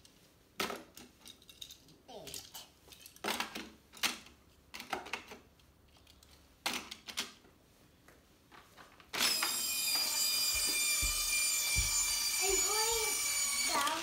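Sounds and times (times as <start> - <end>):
small electric motor whine: 9.2 - 14.0.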